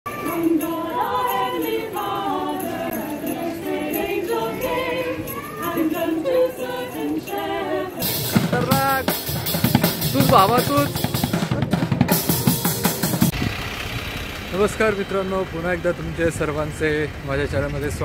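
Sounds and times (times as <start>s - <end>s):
women singing unaccompanied: 0.1s - 8.4s
drum kit playing: 8.0s - 14.0s.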